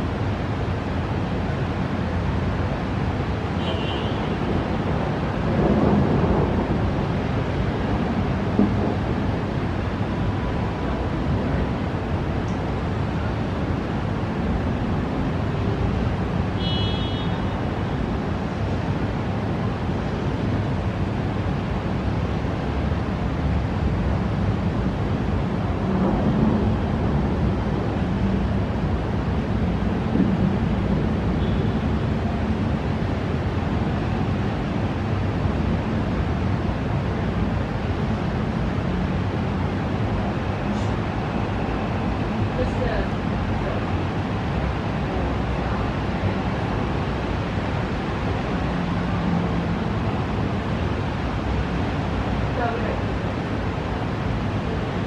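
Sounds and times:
wind and rain: 0.0 - 55.0
wind buffeting the microphone: 4.3 - 16.5.

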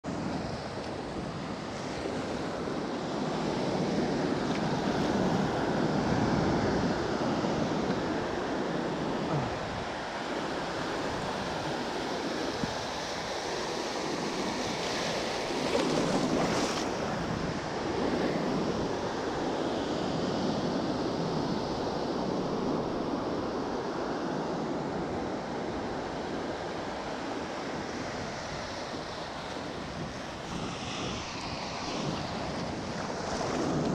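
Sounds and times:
ocean surf breaking on beach: 0.1 - 33.9
wind buffeting microphone: 27.7 - 33.9.

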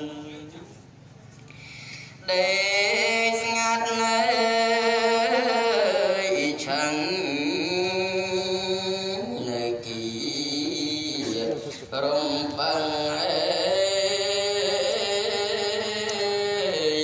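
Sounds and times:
person chanting: 0.0 - 0.8, 2.1 - 17.0.

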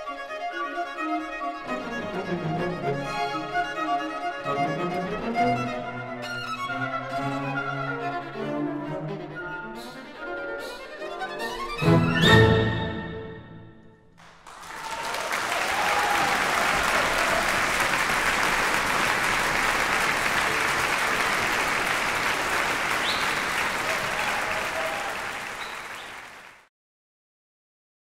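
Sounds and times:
audience applause: 14.2 - 26.7.

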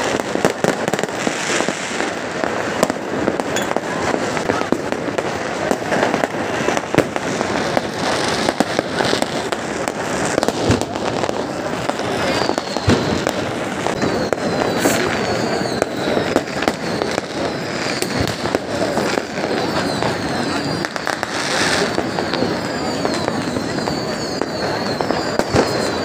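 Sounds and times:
firework whistles: 0.0 - 26.0
fireworks bangs and crackling: 0.0 - 26.0.

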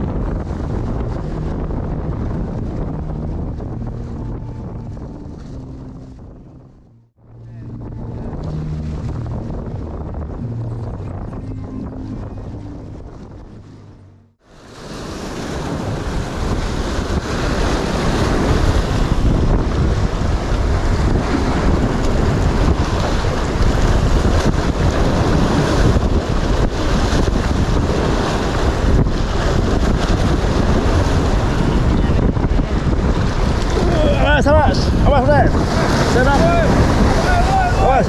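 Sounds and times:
wind buffeting microphone: 0.0 - 38.0
waves washing against rocky shore: 14.5 - 38.0.

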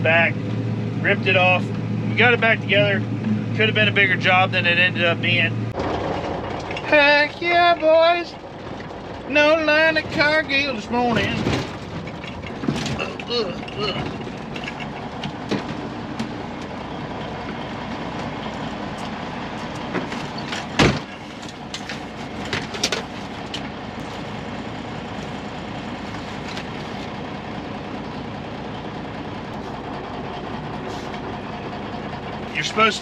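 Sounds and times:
diesel truck engine running: 0.0 - 33.0
cab rattles and knocks: 11.0 - 24.4.

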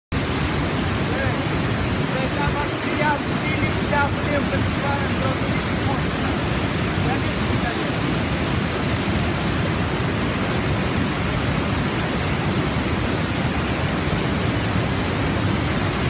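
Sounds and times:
waterfall rushing: 0.1 - 16.0.

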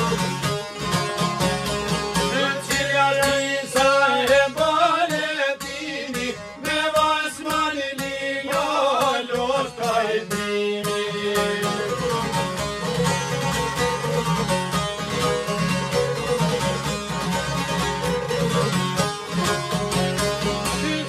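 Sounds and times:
plucked lutes playing: 0.0 - 21.0
man singing: 2.2 - 12.4, 20.6 - 21.0.

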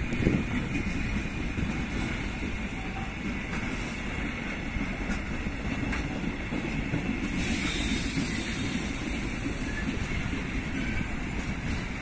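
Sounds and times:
train wheels rumbling on track: 0.0 - 12.0.

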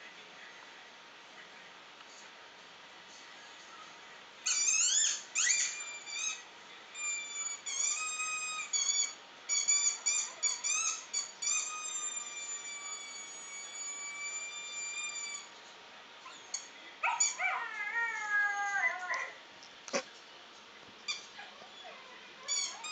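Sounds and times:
small dog whining through speakers: 4.5 - 15.5, 16.3 - 20.1, 21.1 - 22.9.

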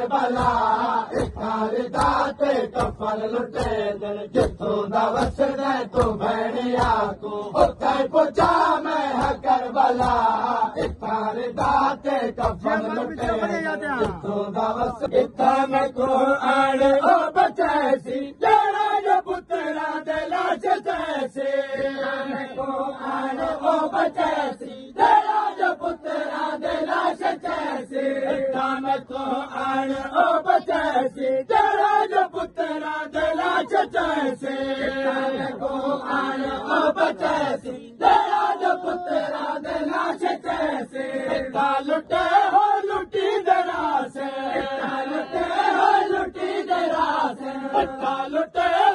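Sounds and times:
men chanting in unison: 0.0 - 48.9
hands slapping chests: 0.2 - 15.3.

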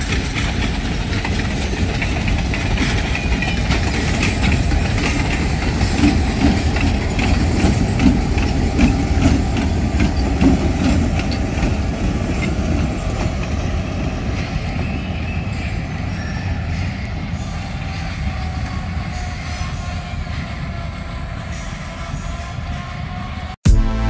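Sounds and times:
wheels clattering over rail joints: 0.0 - 13.6.

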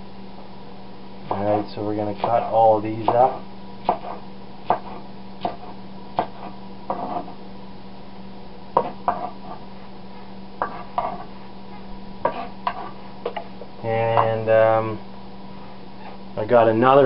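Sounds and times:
steady low hum: 0.0 - 17.0
knife chopping on wooden board: 2.2 - 7.4, 8.8 - 9.6, 10.6 - 11.3, 12.2 - 13.4.

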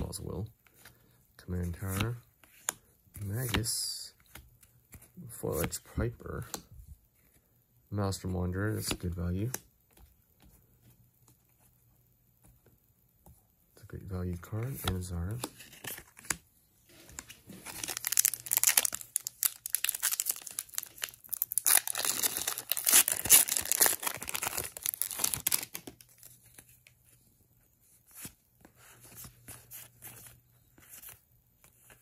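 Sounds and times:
cards clicking and rustling: 17.2 - 26.9
foil wrapper tearing and crinkling: 17.6 - 26.0.

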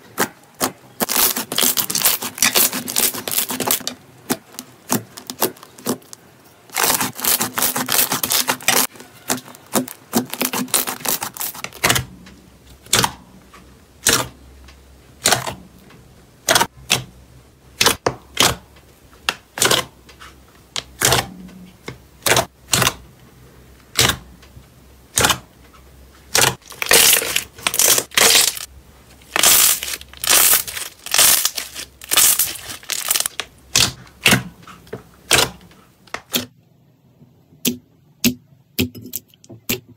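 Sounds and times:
slime popping and squelching: 26.4 - 34.4.

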